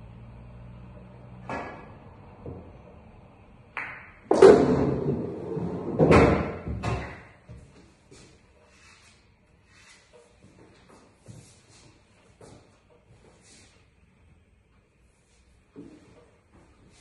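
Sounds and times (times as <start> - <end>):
billiard balls knocking together: 3.8 - 7.4
cue striking billiard ball: 3.8 - 7.4.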